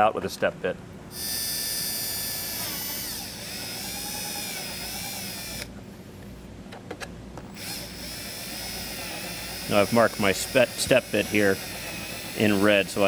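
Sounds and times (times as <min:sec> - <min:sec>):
power drill whining: 0:01.1 - 0:05.7, 0:07.5 - 0:13.0.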